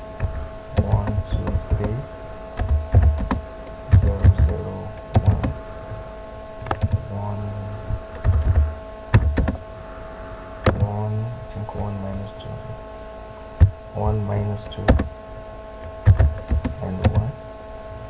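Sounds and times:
steady tone: 0:00.0 - 0:17.4
typing on computer keyboard: 0:00.2 - 0:02.0, 0:02.6 - 0:04.5, 0:05.1 - 0:05.6, 0:06.6 - 0:07.0, 0:08.2 - 0:09.6, 0:16.0 - 0:17.3.

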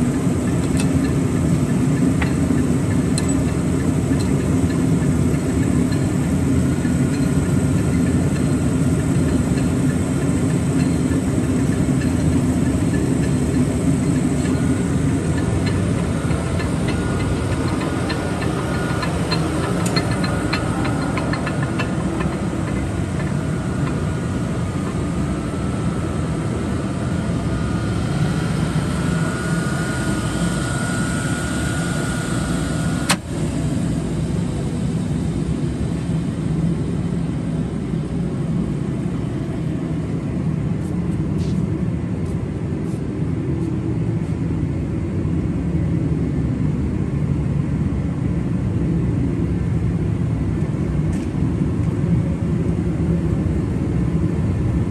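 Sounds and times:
lathe motor rumbling: 0:00.0 - 0:40.9
faint high whine: 0:03.1 - 0:40.3.

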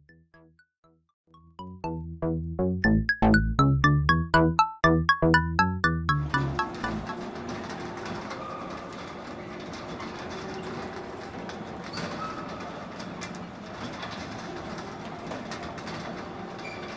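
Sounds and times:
carousel mechanical rumble: 0:06.2 - 0:16.9
small clicks and clatter: 0:07.4 - 0:16.9.

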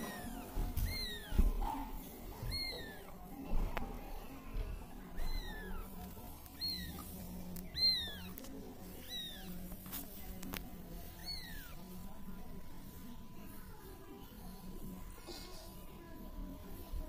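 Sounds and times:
kittens mewing: 0:00.0 - 0:03.3, 0:04.1 - 0:09.6, 0:11.1 - 0:11.8.

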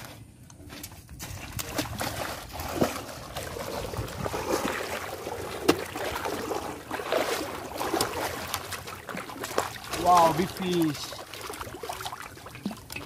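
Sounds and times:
person wading through water: 0:00.0 - 0:13.0.

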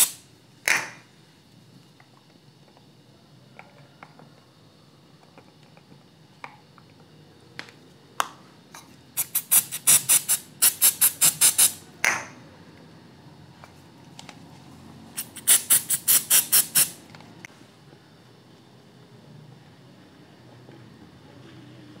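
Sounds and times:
aerosol spray puffs: 0:00.0 - 0:00.2, 0:09.2 - 0:11.8, 0:15.2 - 0:17.0.

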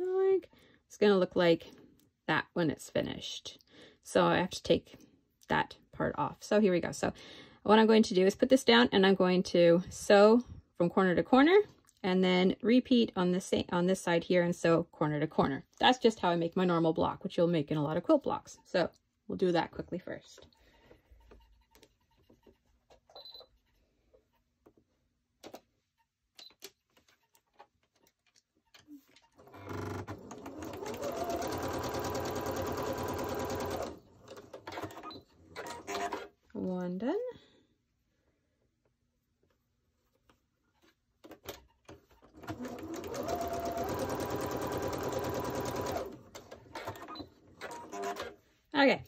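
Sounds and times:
sewing machine stitching: 0:29.3 - 0:36.3, 0:42.0 - 0:48.4.

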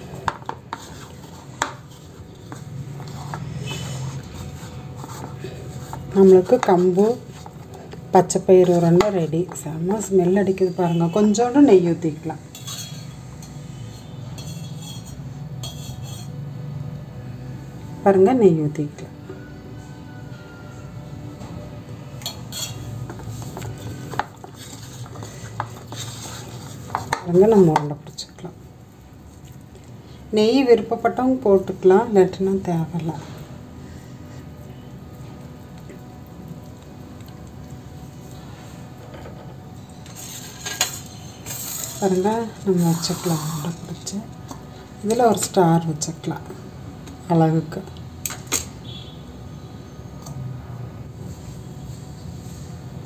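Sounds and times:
hands mixing crumbly mixture: 0:00.0 - 0:10.0
hands mixing food in a bowl: 0:00.0 - 0:10.4, 0:22.4 - 0:39.1.

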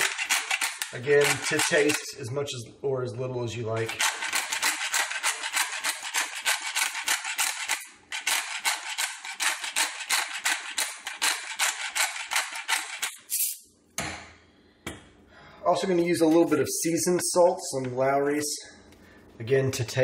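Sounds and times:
pepper mill grinding: 0:00.0 - 0:02.2, 0:03.7 - 0:13.6.

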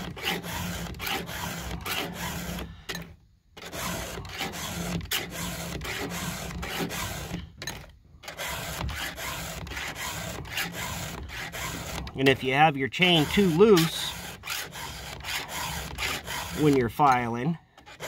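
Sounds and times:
file rasping on chainsaw chain: 0:00.0 - 0:18.0.

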